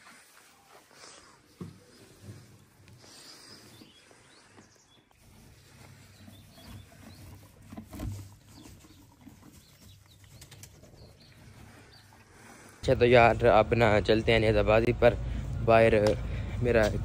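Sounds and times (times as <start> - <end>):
horse chewing: 4.6 - 12.8.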